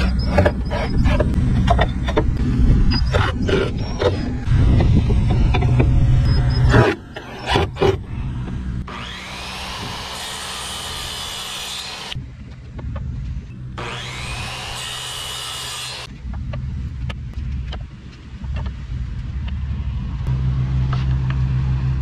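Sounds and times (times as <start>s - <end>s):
electric saw cutting wood: 0.0s - 12.2s, 13.7s - 16.1s.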